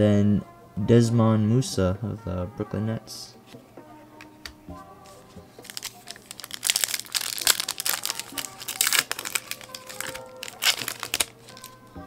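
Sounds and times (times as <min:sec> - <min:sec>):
foil pack ripping: 0:05.6 - 0:11.8
foil wrapper crackling: 0:05.6 - 0:11.8.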